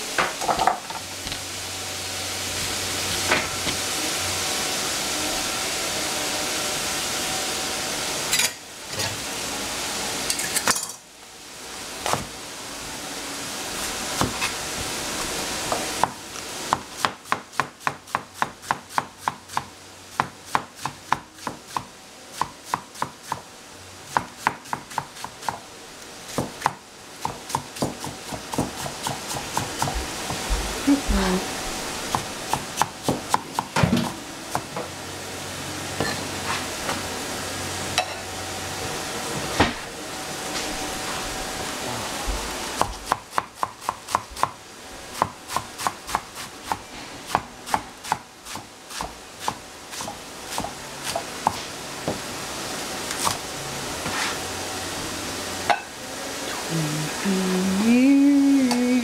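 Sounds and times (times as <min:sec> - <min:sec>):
cleaver chopping cabbage on board: 0:16.0 - 0:23.5, 0:24.1 - 0:25.6, 0:26.3 - 0:30.5, 0:32.1 - 0:34.7, 0:42.8 - 0:44.6, 0:45.2 - 0:51.6.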